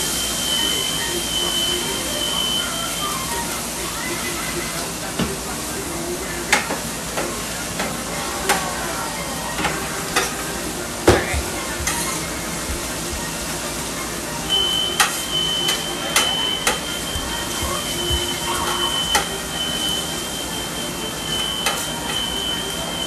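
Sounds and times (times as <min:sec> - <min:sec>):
food sizzling on griddle: 0:00.0 - 0:08.6, 0:09.6 - 0:23.0
steady high electronic tone: 0:14.5 - 0:23.0.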